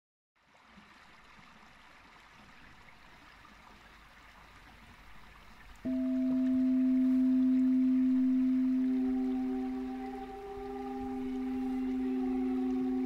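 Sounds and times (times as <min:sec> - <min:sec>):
stream flowing around rock: 0:00.4 - 0:13.0
singing bowl ringing: 0:05.9 - 0:13.0.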